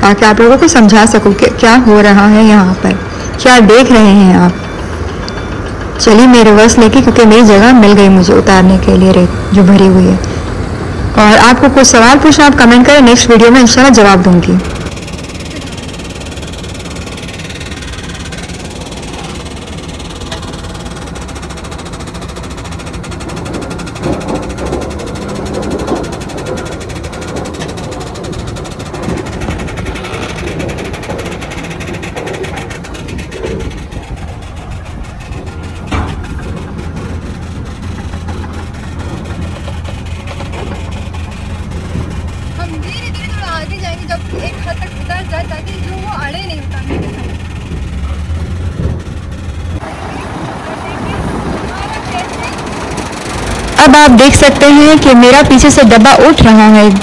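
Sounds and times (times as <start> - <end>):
diesel truck engine running: 0.0 - 57.0
clunks and knock: 23.2 - 42.5, 46.7 - 49.8.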